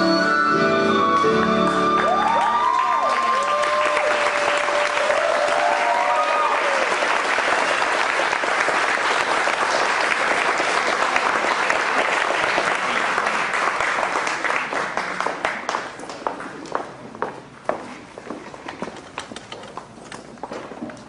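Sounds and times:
audience applauding: 0:01.8 - 0:16.4.

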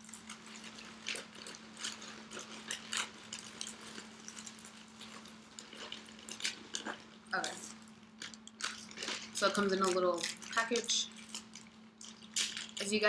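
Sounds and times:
faint low hum: 0:00.0 - 0:13.0
plastic bag crinkling: 0:00.0 - 0:13.0.

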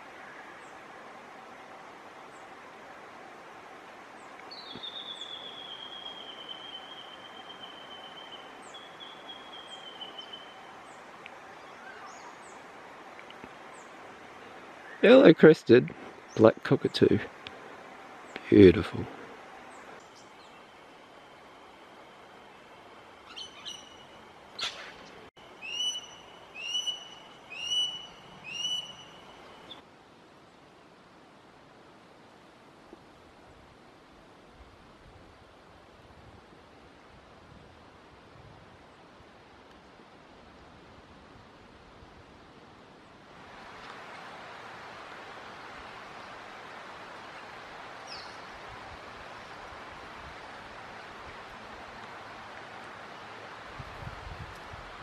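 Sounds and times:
outdoor hiss: 0:00.0 - 0:55.0
small birds chirping: 0:04.2 - 0:15.3, 0:22.4 - 0:29.8, 0:47.2 - 0:48.6.

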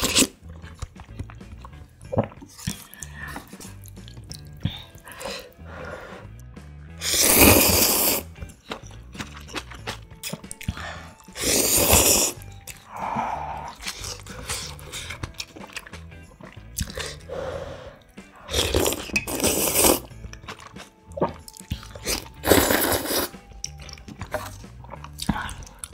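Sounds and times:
noodles slurped loudly: 0:00.0 - 0:04.1, 0:07.0 - 0:08.3, 0:11.2 - 0:13.0, 0:13.6 - 0:17.3, 0:18.4 - 0:25.9
wet chewing: 0:00.0 - 0:05.7, 0:07.3 - 0:25.9
mouth clicks: 0:16.7 - 0:17.3.

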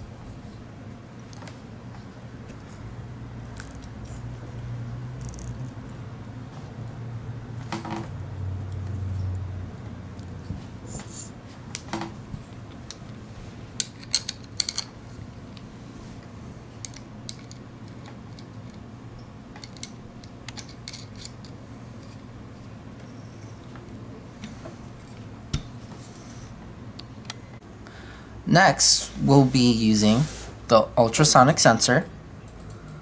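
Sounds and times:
steady low hum: 0:00.0 - 0:33.0
metal parts clicking and rattling: 0:13.8 - 0:15.0, 0:16.8 - 0:18.8, 0:19.6 - 0:21.6.

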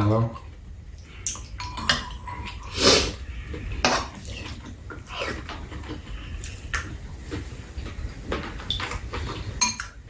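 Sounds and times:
eating noises: 0:00.0 - 0:10.0
metal spoons clinking against bowls: 0:01.3 - 0:02.7, 0:09.6 - 0:10.0.

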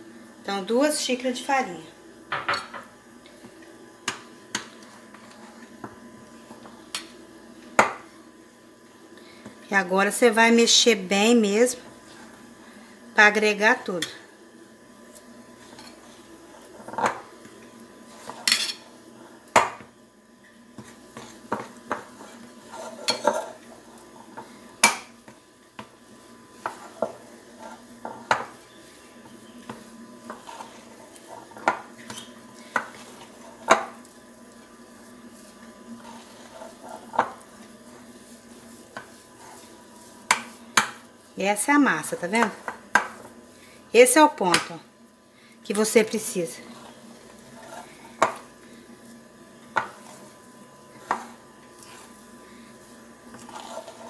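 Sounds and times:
metal utensil stirring dough in glass bowl: 0:53.3 - 0:54.0.

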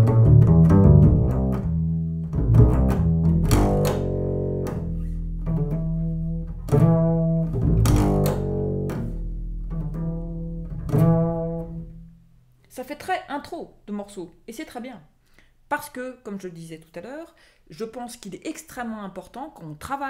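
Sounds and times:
double bass plucked notes: 0:00.0 - 0:12.5.

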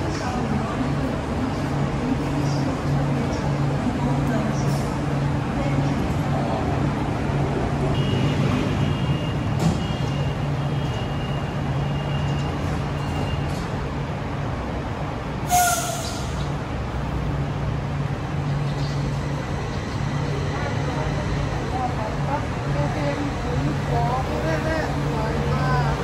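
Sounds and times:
train low hum: 0:00.0 - 0:26.0.

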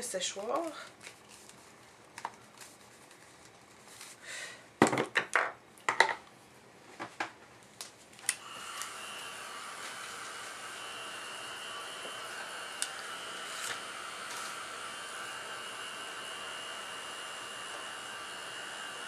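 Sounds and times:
hair dryer whirring: 0:08.3 - 0:19.0.

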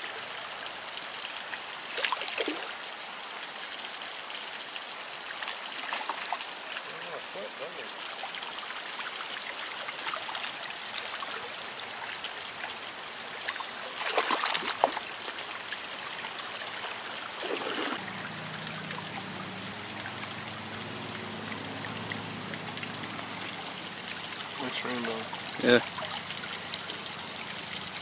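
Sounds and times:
creek flowing over riffles: 0:00.0 - 0:28.0
fish splashing at surface: 0:13.5 - 0:15.2.

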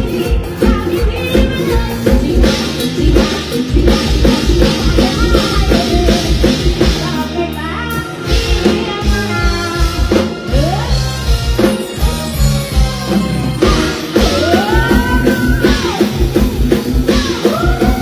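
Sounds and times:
woman singing into a microphone: 0:00.0 - 0:11.4, 0:13.6 - 0:16.3, 0:17.0 - 0:18.0
bass line: 0:00.0 - 0:18.0
live band dance music: 0:00.0 - 0:18.0.

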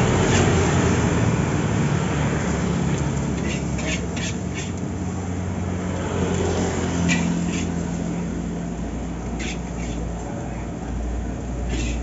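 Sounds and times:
metal spatula scraping wok: 0:00.0 - 0:00.9, 0:03.2 - 0:04.8, 0:07.0 - 0:08.0, 0:09.3 - 0:10.1, 0:11.6 - 0:12.0.

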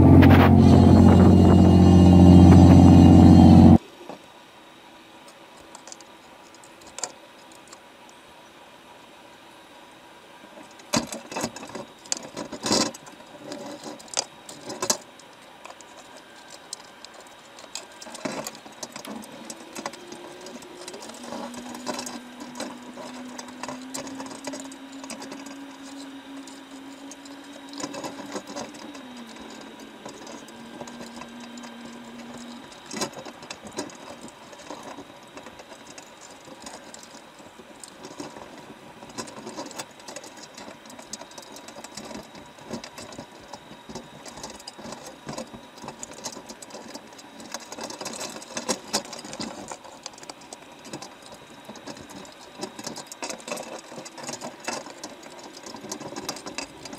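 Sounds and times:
faint steady hum: 0:00.0 - 0:56.9
underwater crackling and ticking: 0:11.6 - 0:56.9.

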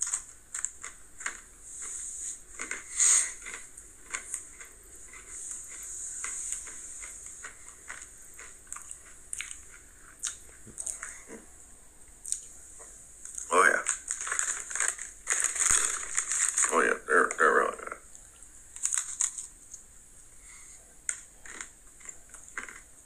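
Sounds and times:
person chewing crunchy snacks: 0:00.0 - 0:11.4, 0:13.3 - 0:16.8, 0:18.7 - 0:19.6, 0:21.1 - 0:23.0.

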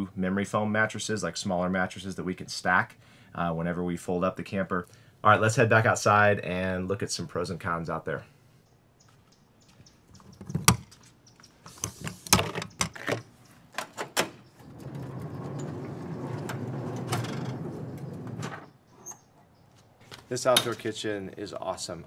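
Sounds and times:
metal latch clicking open: 0:11.8 - 0:14.5
compartment door clicks and knocks: 0:13.8 - 0:14.5
slide-out kitchen rolling on rails: 0:14.4 - 0:19.2.

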